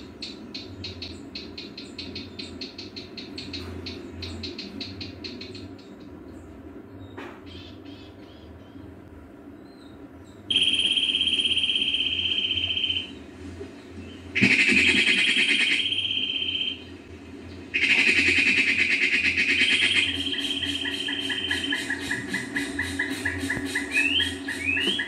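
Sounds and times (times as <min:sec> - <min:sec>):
low pulsing insect call: 0:09.5 - 0:25.0.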